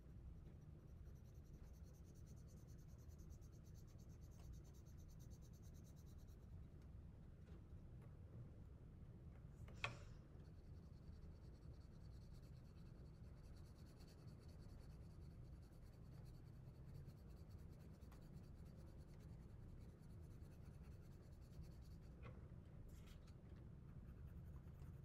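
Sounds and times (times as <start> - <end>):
coloring strokes scratching paper: 0.6 - 6.4, 10.5 - 22.2, 23.9 - 25.0.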